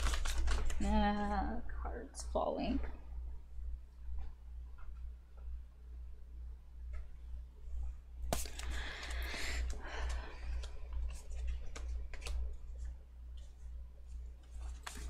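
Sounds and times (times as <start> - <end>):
steady low hum: 0.0 - 15.0
card deck shuffling: 8.3 - 9.3, 10.5 - 13.5.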